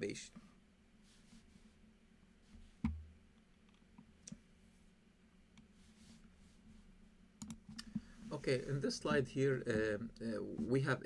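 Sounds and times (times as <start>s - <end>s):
low steady hum: 0.0s - 11.0s
faint clicks: 7.4s - 8.1s.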